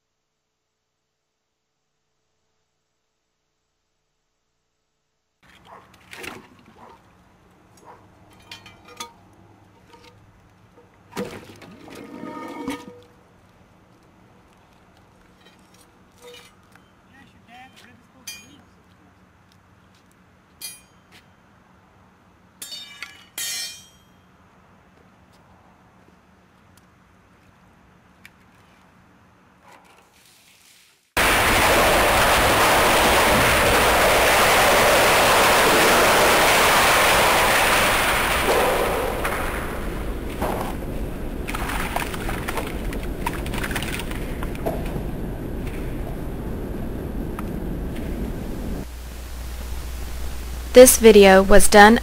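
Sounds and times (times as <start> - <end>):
metal clinking and ringing: 8.3 - 9.2, 18.3 - 18.6, 20.6 - 21.1, 22.6 - 24.2
water splashing into shaft: 31.2 - 45.8.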